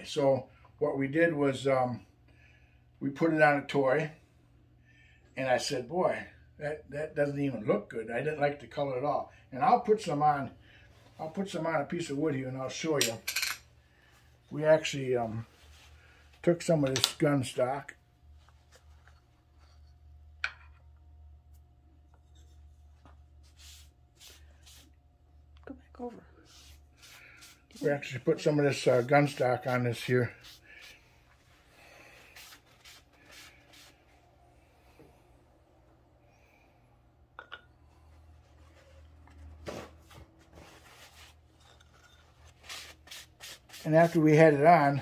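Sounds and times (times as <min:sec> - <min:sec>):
low steady hum: 0:00.0 - 0:45.0
paper towel rustling: 0:38.5 - 0:41.5.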